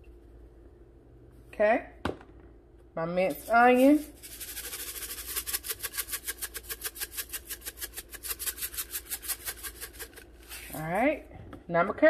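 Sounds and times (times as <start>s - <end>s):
spice shaker rattling: 3.3s - 10.9s.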